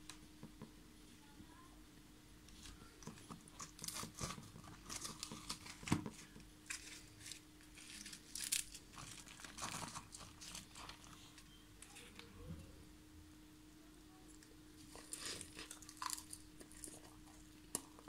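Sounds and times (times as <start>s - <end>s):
bread tearing and rustling: 2.6s - 11.4s, 14.8s - 18.0s.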